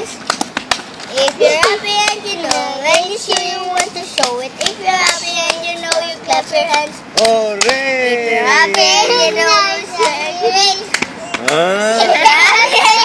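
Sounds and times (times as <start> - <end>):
sharp hand claps: 0.2 - 7.8, 10.9 - 11.7
child singing: 1.1 - 7.0, 8.4 - 13.0.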